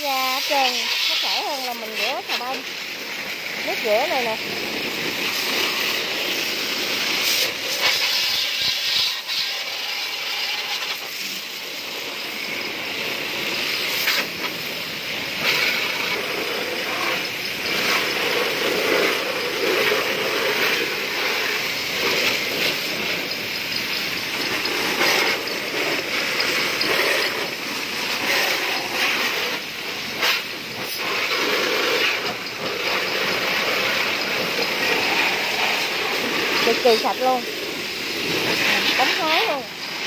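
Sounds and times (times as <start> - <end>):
hose water spraying on plastic: 0.0 - 40.0.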